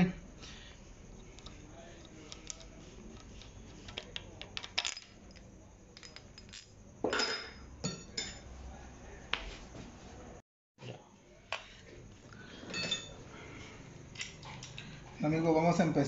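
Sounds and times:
metal parts clinking: 2.2s - 6.8s.

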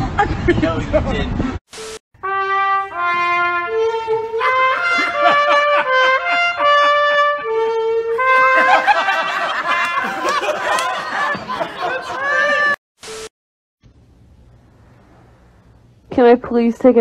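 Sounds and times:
trumpet playing: 2.2s - 11.3s
people laughing: 4.4s - 6.7s, 8.2s - 12.8s.

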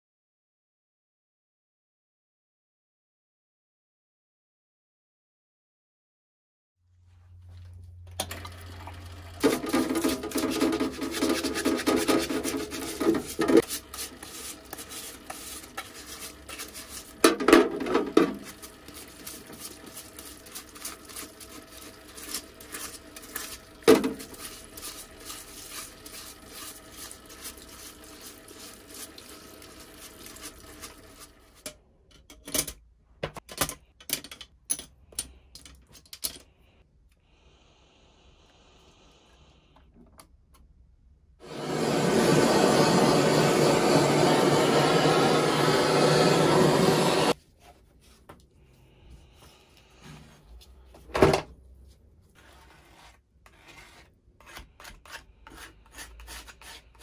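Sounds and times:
wet brush scrubbing: 9.4s - 31.7s, 51.8s - 57.0s.

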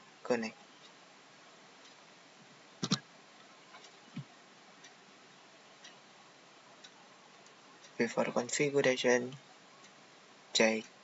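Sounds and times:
faint ticks: 0.7s - 1.0s, 1.8s - 6.1s, 6.8s - 8.6s, 9.3s - 11.0s.

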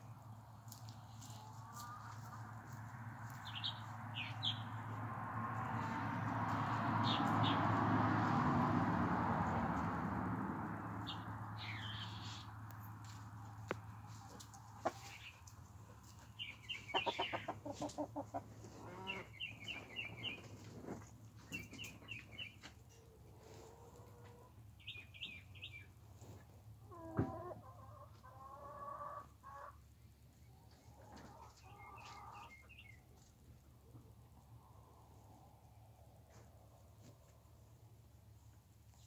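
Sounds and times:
chickens clucking: 0.7s - 3.6s, 13.0s - 24.6s, 26.3s - 34.2s.

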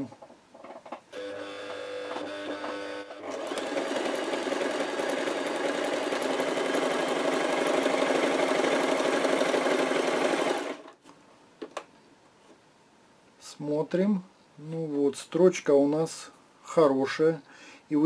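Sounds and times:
sewing machine stitching fabric: 0.7s - 11.0s.

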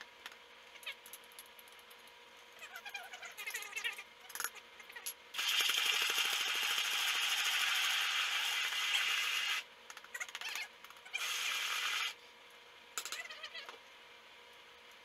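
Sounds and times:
immersion blender running: 11.2s - 12.2s.

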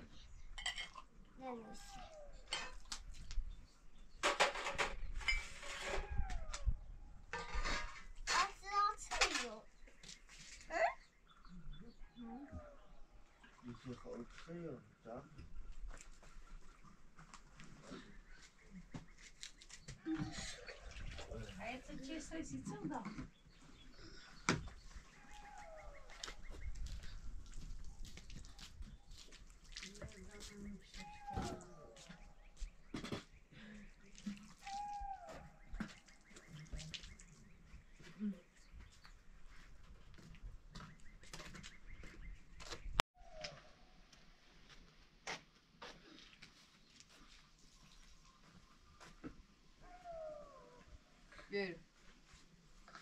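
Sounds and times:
metal dishes clinking and scraping: 0.6s - 1.1s, 2.5s - 2.9s, 4.2s - 6.0s, 7.3s - 8.5s.

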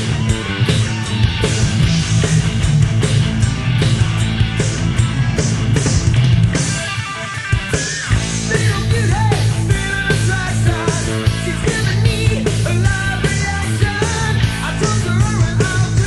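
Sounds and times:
lead guitar bending notes: 0.0s - 16.0s
rock band playing: 0.0s - 16.0s.

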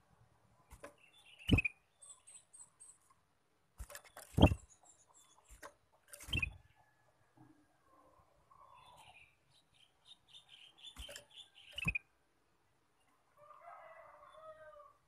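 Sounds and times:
bird chirping and ticking: 0.7s - 3.2s, 3.8s - 6.9s, 8.6s - 12.1s.

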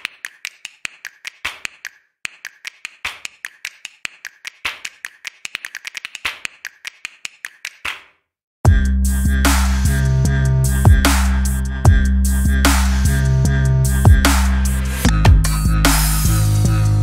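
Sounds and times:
music: 8.7s - 17.0s.

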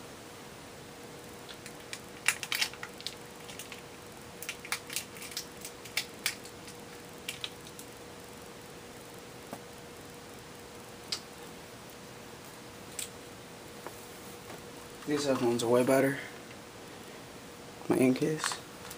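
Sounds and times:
faint steady hum: 0.0s - 18.9s
small objects clicking and rustling: 1.5s - 7.9s.

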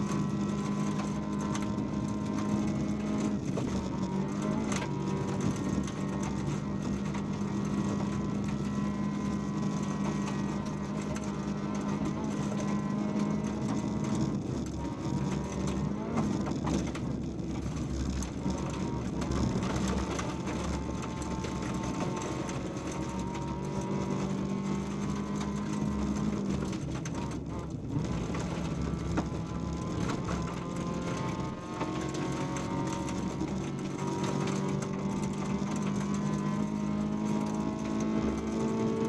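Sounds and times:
gravel rattling against underbody: 0.0s - 39.0s
rally car engine running hard: 0.0s - 39.0s.

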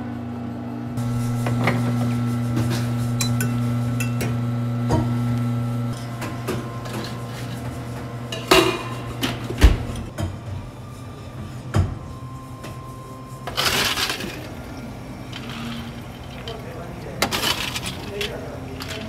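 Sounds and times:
espresso machine humming: 0.1s - 10.1s.

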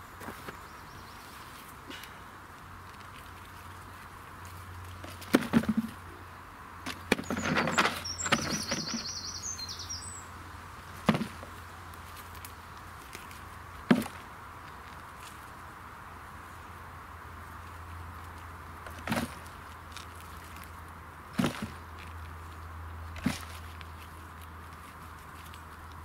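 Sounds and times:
rustling: 6.9s - 9.4s, 17.4s - 26.0s
bird warbling chirp: 7.2s - 10.3s.

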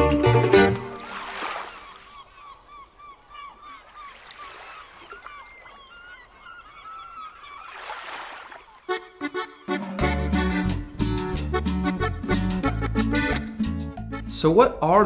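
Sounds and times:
flock of birds calling: 1.1s - 7.9s.

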